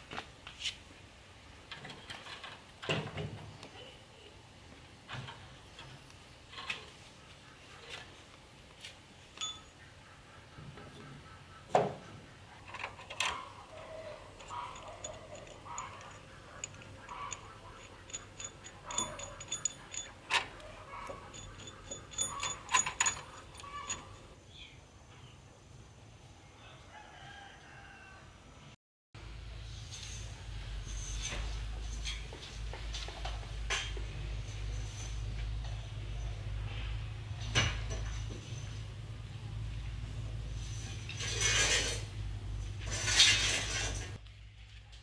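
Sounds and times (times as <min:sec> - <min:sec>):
metallic knocks and clicks: 0:12.6 - 0:24.3.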